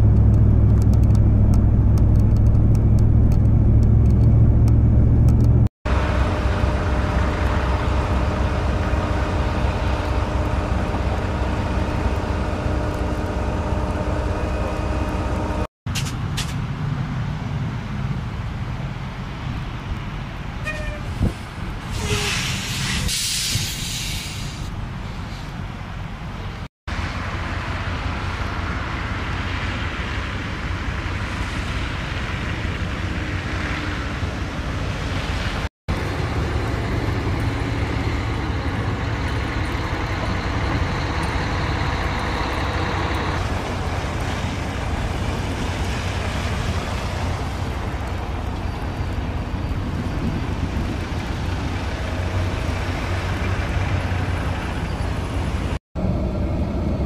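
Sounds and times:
vehicle engines: 0:00.0 - 0:57.0
loud hiss: 0:21.3 - 0:24.7.

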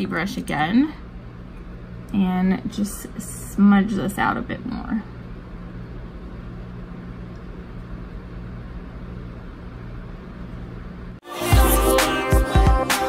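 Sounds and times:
low electrical hum: 0:00.0 - 0:11.2
r and b music with a beat: 0:11.2 - 0:13.0.

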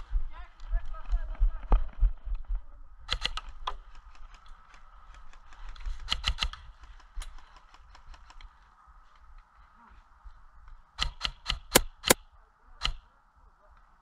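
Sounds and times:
airsoft guns firing: 0:11.0 - 0:12.2.

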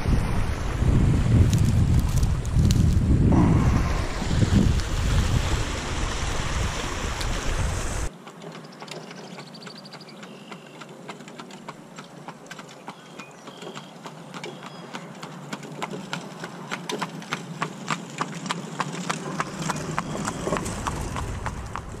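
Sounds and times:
wind buffeting microphone: 0:00.0 - 0:08.1, 0:19.2 - 0:22.0.

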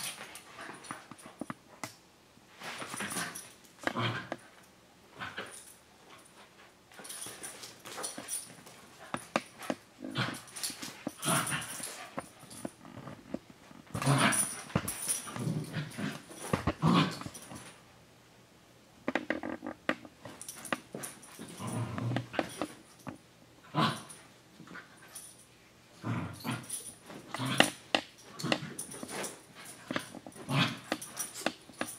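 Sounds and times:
dogs growling playfully: 0:02.9 - 0:04.5, 0:09.0 - 0:12.7, 0:13.9 - 0:17.7, 0:20.5 - 0:22.8, 0:23.6 - 0:24.8, 0:26.0 - 0:31.6.

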